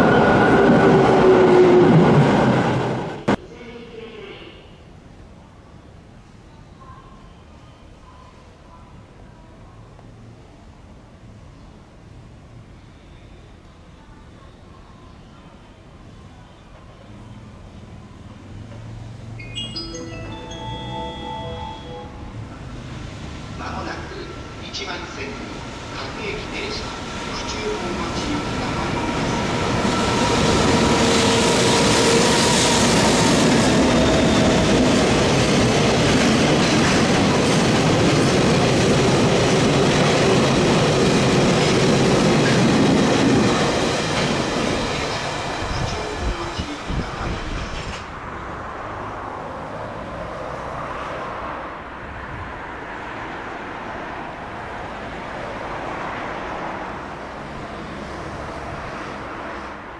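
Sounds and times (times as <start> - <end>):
freight train rolling past: 0.0 - 3.4, 16.0 - 59.9
dull rumble of freight train: 22.3 - 49.3.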